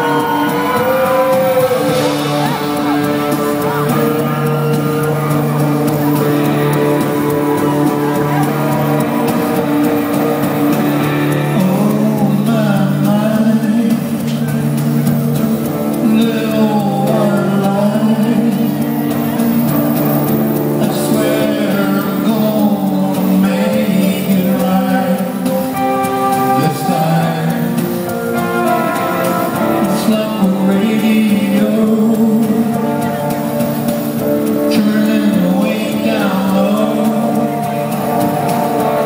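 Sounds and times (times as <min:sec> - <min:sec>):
electric guitar: 0:00.0 - 0:39.0
live rock band playing: 0:00.0 - 0:39.0
man and woman singing: 0:11.5 - 0:14.6, 0:16.0 - 0:19.0, 0:20.8 - 0:28.0, 0:28.9 - 0:32.9, 0:34.6 - 0:37.9.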